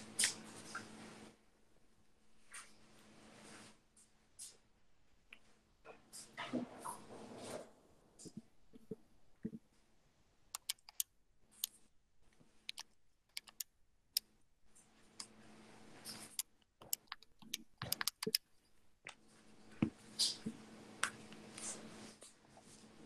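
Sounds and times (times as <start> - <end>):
keys being tapped: 10.6 - 11.0, 12.7 - 13.7, 16.3 - 18.4.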